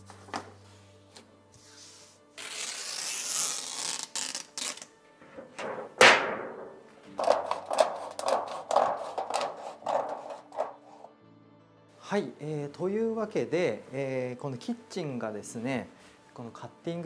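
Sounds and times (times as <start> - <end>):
faint background music: 0.0 - 17.0
sharp loud knock: 5.4 - 7.5
paper rustling and crackling: 7.2 - 10.8.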